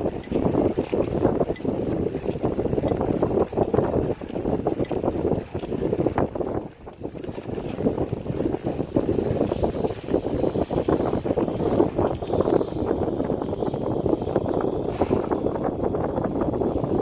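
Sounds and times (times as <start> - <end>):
bicycle rolling on concrete: 0.0 - 17.0
wind buffeting microphone: 0.0 - 17.0.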